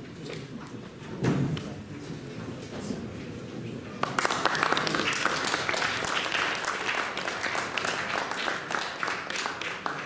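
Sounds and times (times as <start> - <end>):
audience applauding: 4.0 - 10.0.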